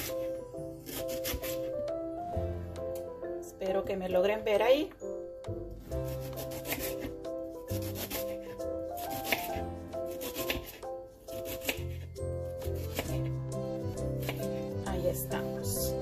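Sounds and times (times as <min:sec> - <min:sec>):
knife slicing on cutting board: 0:00.8 - 0:01.7, 0:06.1 - 0:07.2, 0:07.8 - 0:13.3.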